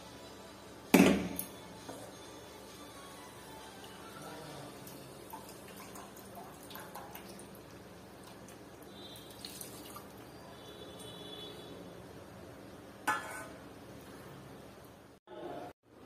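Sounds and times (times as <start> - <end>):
water pouring into pan: 4.8 - 10.4.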